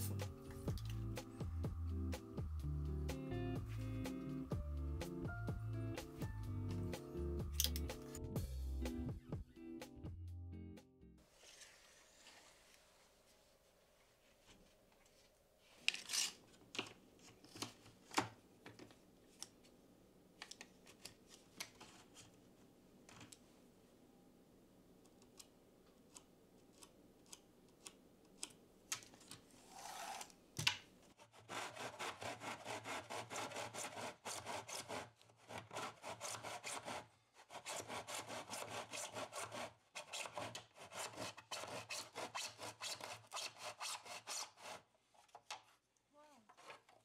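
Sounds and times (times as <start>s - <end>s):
hand saw cutting wood: 31.2s - 44.9s.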